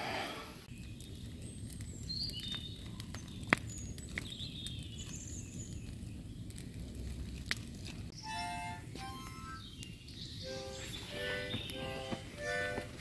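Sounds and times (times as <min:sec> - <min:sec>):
sharp clicks and crackles: 0:00.8 - 0:08.2.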